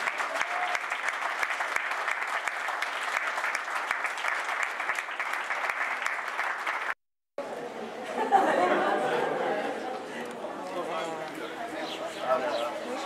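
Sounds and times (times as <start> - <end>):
crowd applauding: 0.0 - 7.0.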